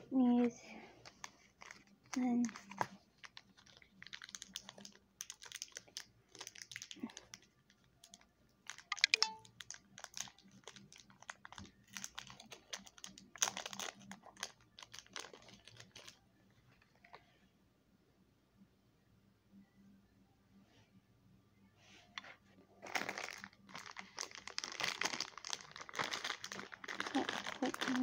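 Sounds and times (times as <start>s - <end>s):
tissue paper rustling and crinkling: 1.0s - 7.4s, 9.6s - 16.2s, 22.8s - 28.0s.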